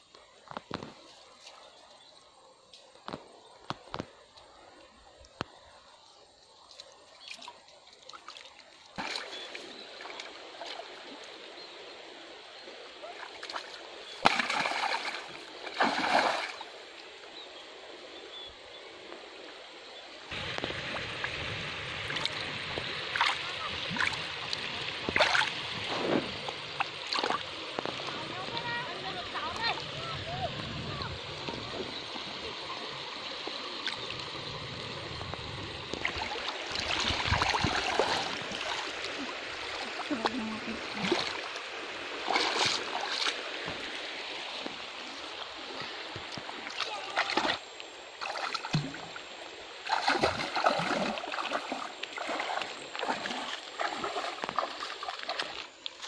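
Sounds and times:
stream water splashing: 0.0s - 56.0s
water sloshing: 6.5s - 11.5s, 13.0s - 17.4s, 20.3s - 30.5s, 35.2s - 56.0s.

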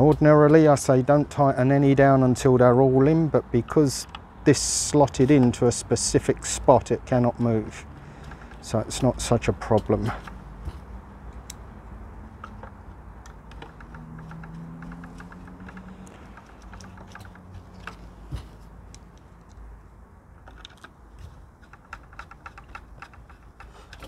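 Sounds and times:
loose screws clinking: 12.3s - 19.7s, 20.4s - 24.0s
screwdriver turning screws clicking: 12.4s - 19.7s, 20.4s - 24.0s.

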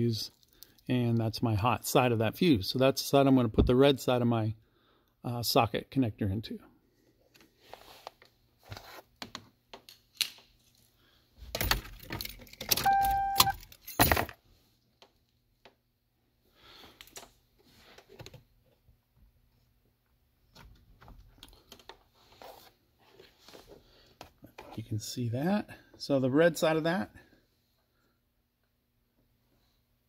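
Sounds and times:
keys jangling: 11.6s - 14.3s
short steady beep: 12.8s - 13.6s.

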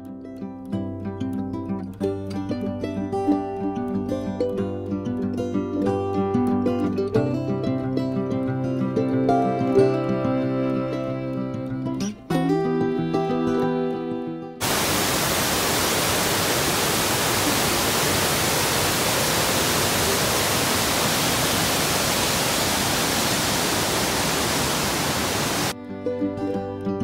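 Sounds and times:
guitar music: 0.0s - 14.6s, 25.7s - 27.0s
waterfall rushing: 14.6s - 25.8s.

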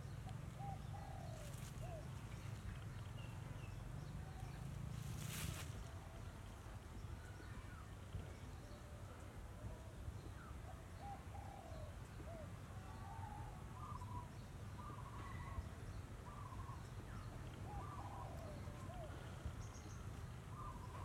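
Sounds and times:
birds calling: 16.3s - 21.0s.

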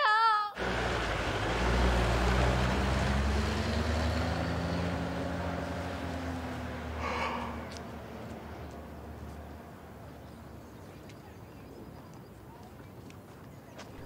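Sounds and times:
jeep engine running: 0.6s - 10.9s.

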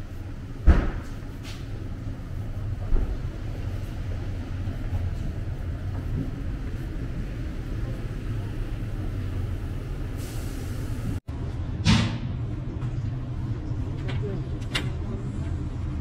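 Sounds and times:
bus engine idling: 0.0s - 11.2s.

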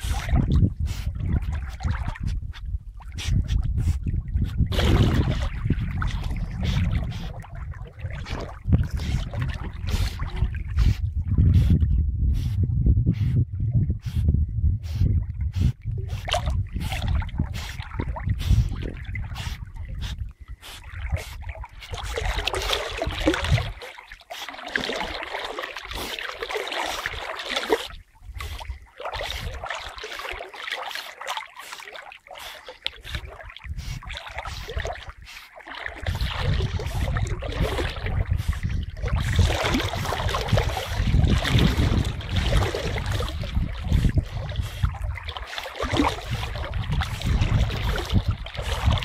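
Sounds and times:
water sloshing and splashing: 0.0s - 11.5s, 15.1s - 49.0s
rumbling buffets on microphone: 0.0s - 22.2s, 36.0s - 45.3s, 45.9s - 49.0s.

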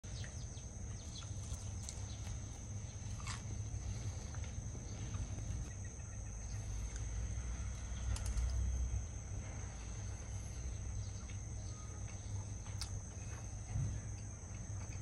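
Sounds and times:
food being chewed: 0.2s - 5.7s.

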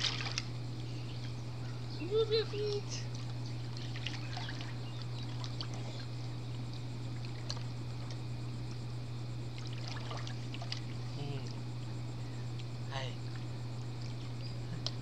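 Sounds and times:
pool water splashing: 0.0s - 0.6s, 3.1s - 8.2s, 9.5s - 11.6s
low steady hum: 0.0s - 15.0s.

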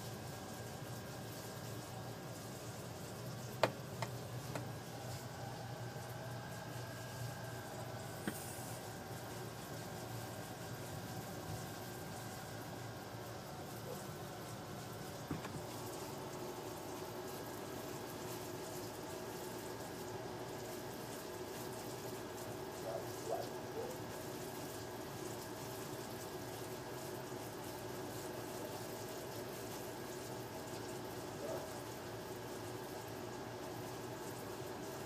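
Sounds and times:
faint hum: 0.0s - 24.2s
background hiss: 0.0s - 28.4s.

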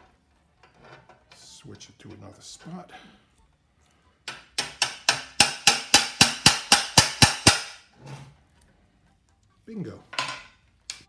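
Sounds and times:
hammer striking steel rod: 4.3s - 7.9s.

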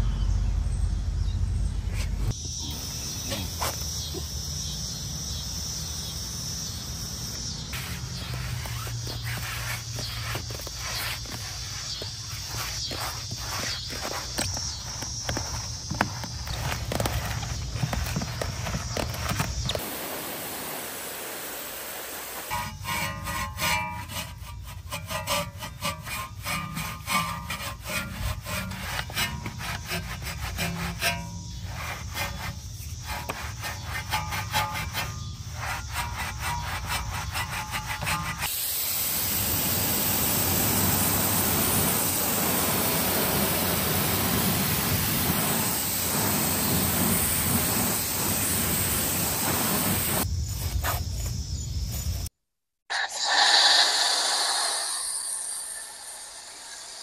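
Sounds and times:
brush scrubbing a surface: 7.8s - 19.4s, 22.3s - 38.5s, 42.8s - 51.1s.

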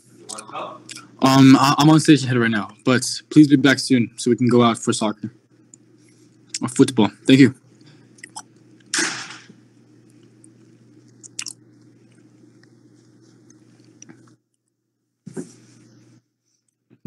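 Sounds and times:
low electrical hum: 0.0s - 17.0s
chewing and crunching food: 10.0s - 14.6s.

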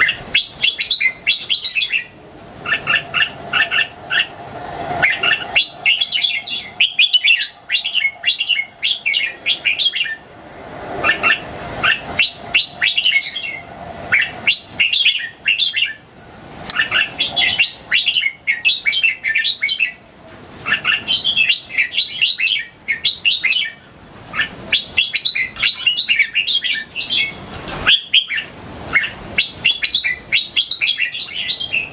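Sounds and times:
bird singing chirping phrases: 0.0s - 4.4s, 5.0s - 10.2s, 11.0s - 16.0s, 16.7s - 20.0s, 20.6s - 31.9s.

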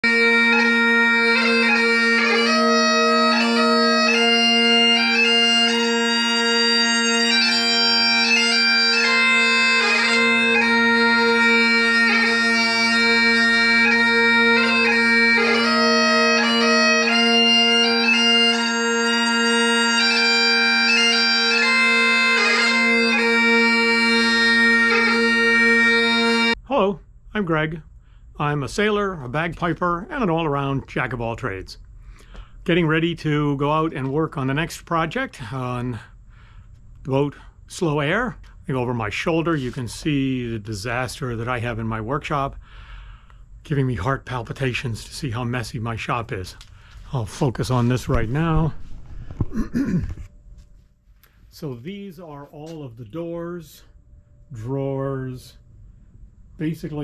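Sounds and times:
bagpipes playing a tune: 0.0s - 26.6s.

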